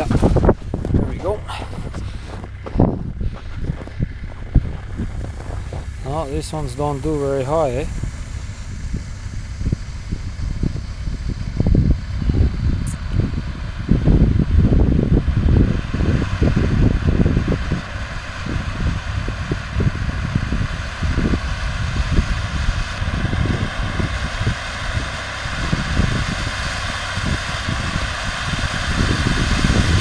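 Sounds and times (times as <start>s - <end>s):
wind buffeting microphone: 0.0s - 30.0s
firework hissing: 4.0s - 30.0s.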